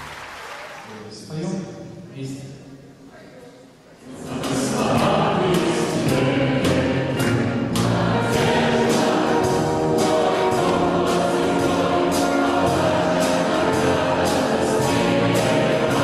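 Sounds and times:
orchestra and choir: 3.9 - 16.0
crisp beat: 4.2 - 16.0.

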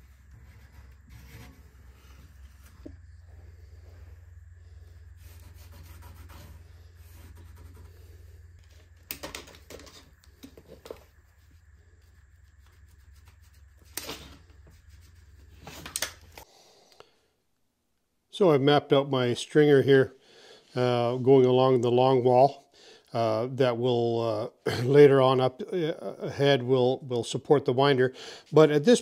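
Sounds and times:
paper rustling and scraping: 0.0 - 3.0, 5.2 - 16.4
steady low hum: 0.0 - 17.6.

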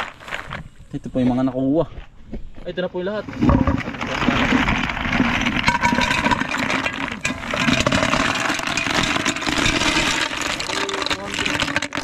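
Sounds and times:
snail shells clattering in metal pot: 3.5 - 12.0.

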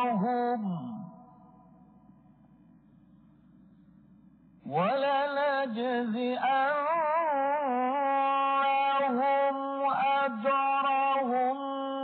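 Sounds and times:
man reciting melodically: 0.0 - 1.4, 4.7 - 12.0.

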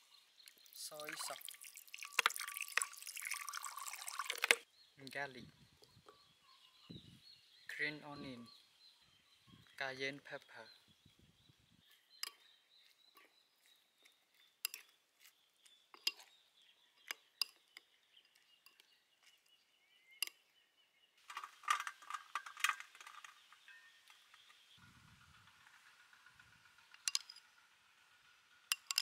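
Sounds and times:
metal spoon clinking ceramic bowl: 1.4 - 4.6, 16.0 - 16.3, 27.0 - 27.4, 28.7 - 29.0.

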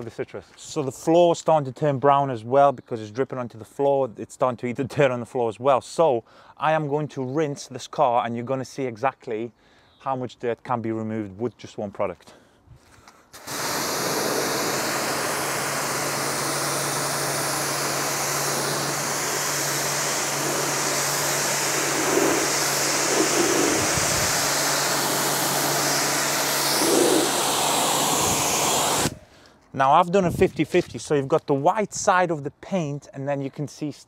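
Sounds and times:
pressure washer spraying water: 13.4 - 29.2.

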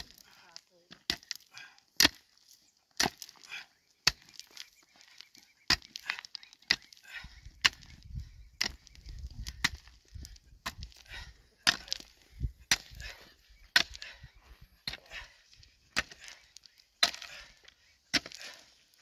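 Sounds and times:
pickaxe striking rocky soil: 0.0 - 2.4, 3.0 - 4.7, 5.6 - 8.0, 8.6 - 14.2, 15.9 - 19.0
stones and earth clattering: 0.0 - 19.0.

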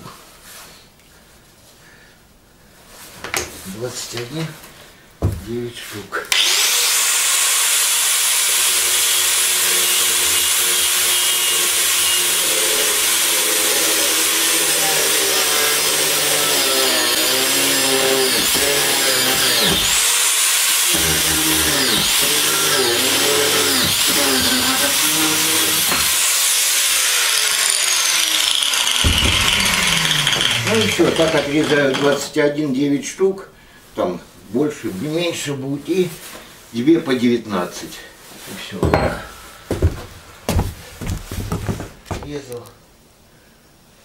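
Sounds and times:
angle grinder cutting steel: 6.3 - 32.4.

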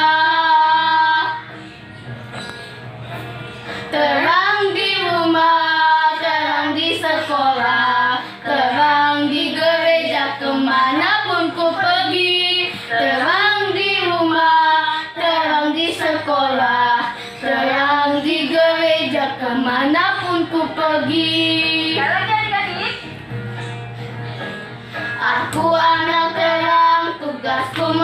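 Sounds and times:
children singing: 0.0 - 1.5, 3.9 - 22.0, 25.2 - 28.0.

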